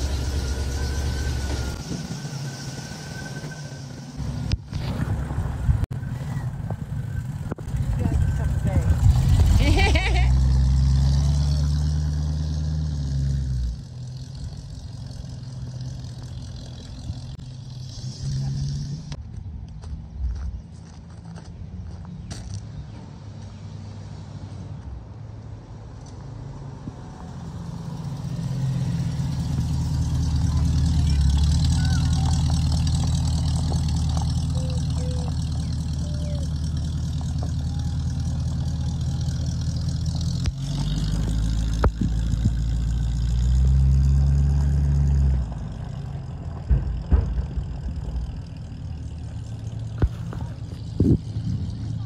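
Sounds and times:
car engine running: 0:00.0 - 0:22.0, 0:27.9 - 0:52.0
sharp knocks: 0:46.6 - 0:49.0.

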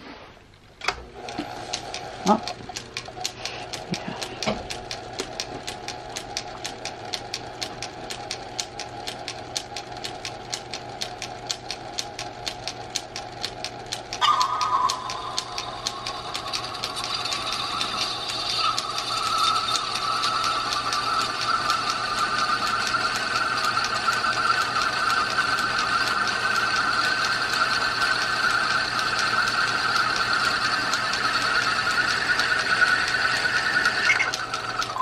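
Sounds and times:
fast even ticking of lathe drive: 0:00.9 - 0:35.0
lathe whine rising in pitch: 0:14.2 - 0:35.0.

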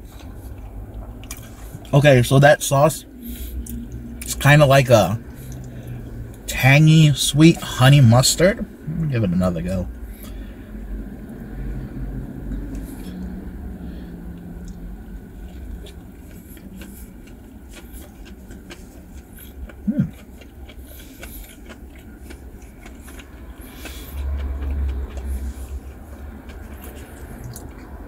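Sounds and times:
traffic rumbling: 0:00.0 - 0:28.0
vehicle passing: 0:00.0 - 0:28.0
man chewing with mouth clicks: 0:00.1 - 0:01.9, 0:05.3 - 0:06.4, 0:14.3 - 0:28.0
man humming: 0:19.8 - 0:20.2.

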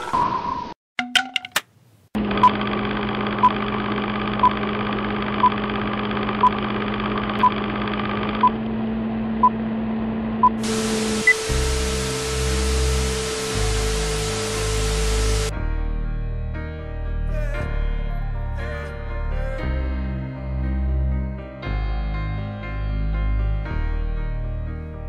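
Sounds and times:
film hum and hiss: 0:10.6 - 0:15.5
tv static with steady tone: 0:10.6 - 0:15.5.

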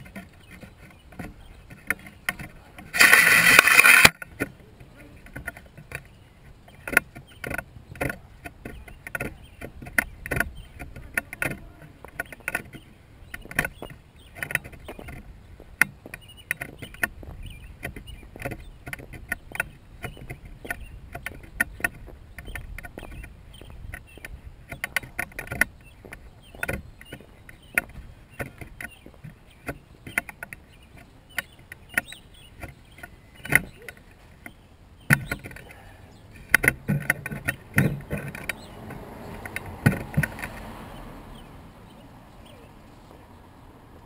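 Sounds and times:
camera handling clicks and knocks: 0:01.2 - 0:04.5
loud rushing scrape: 0:02.9 - 0:04.1.

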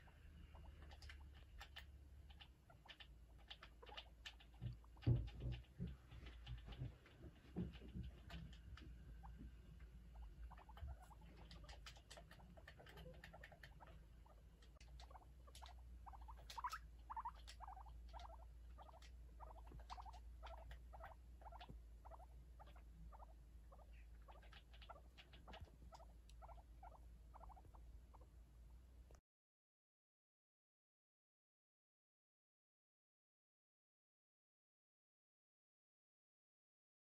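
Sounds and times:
guinea pigs squeaking: 0:00.0 - 0:28.3.

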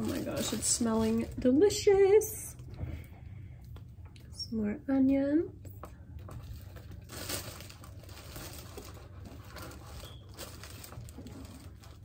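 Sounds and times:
plastic bag rustling: 0:00.0 - 0:02.3, 0:06.2 - 0:12.0.

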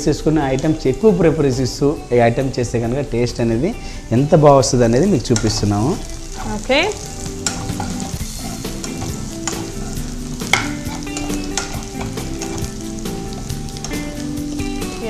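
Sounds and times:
onions sizzling in oil: 0:00.0 - 0:15.0
metal ladle scraping pan: 0:05.2 - 0:14.7.

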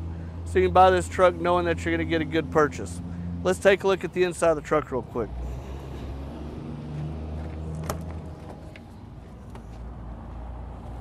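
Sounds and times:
low engine hum: 0:00.0 - 0:11.0.

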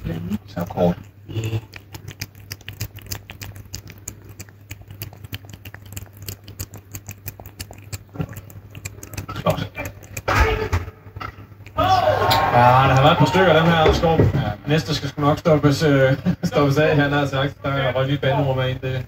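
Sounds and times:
cat chewing and lapping: 0:00.0 - 0:11.8.

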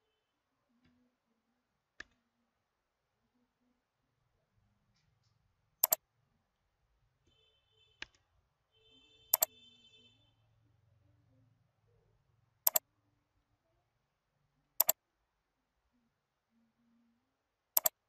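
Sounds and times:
computer mouse button clicks: 0:14.8 - 0:15.0, 0:17.8 - 0:18.0.

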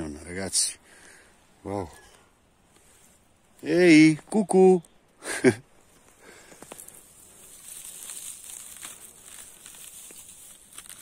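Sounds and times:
dry grass rustling: 0:05.7 - 0:11.0
footsteps through undergrowth: 0:05.8 - 0:11.0
twigs clicking: 0:05.9 - 0:11.0.

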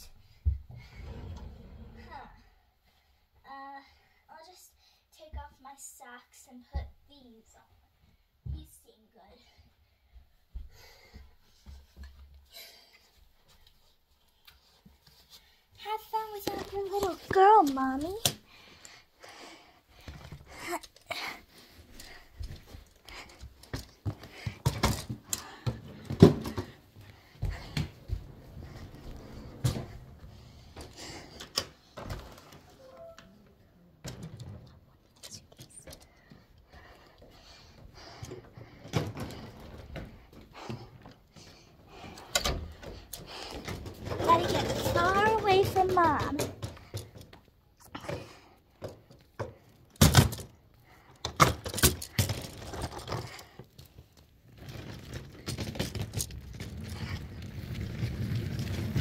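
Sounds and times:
rustling: 0:52.0 - 0:59.0.

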